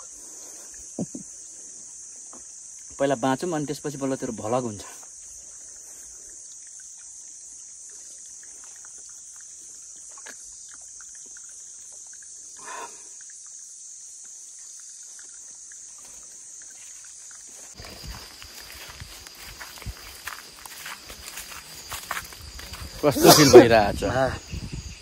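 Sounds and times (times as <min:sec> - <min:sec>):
insects droning: 0:00.0 - 0:25.0
leaves rustling and ticking: 0:13.4 - 0:23.1.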